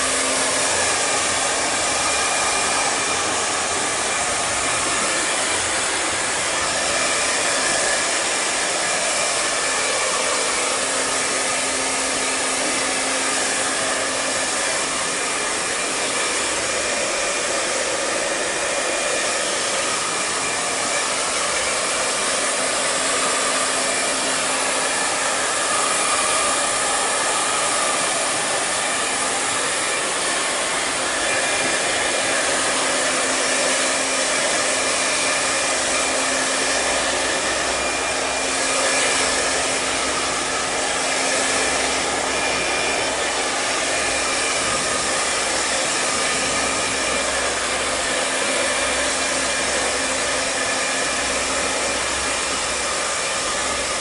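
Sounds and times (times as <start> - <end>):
hair dryer running: 0.0 - 54.0.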